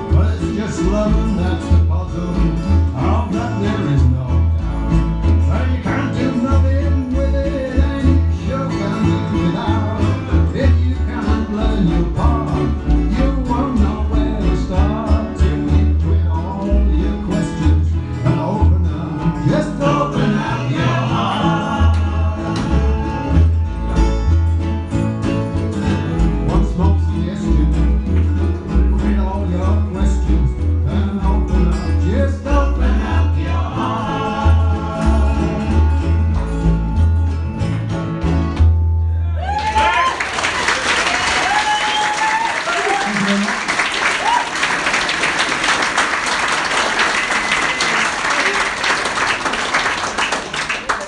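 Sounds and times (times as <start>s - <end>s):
bass line: 0.0s - 40.1s
band playing live: 0.0s - 51.0s
guitar: 0.0s - 51.0s.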